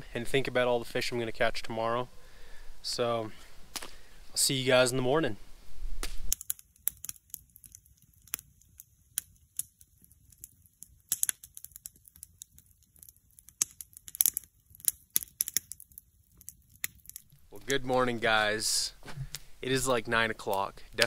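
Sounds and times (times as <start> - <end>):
campfire crackling and popping: 3.3 - 5.0, 6.0 - 21.0.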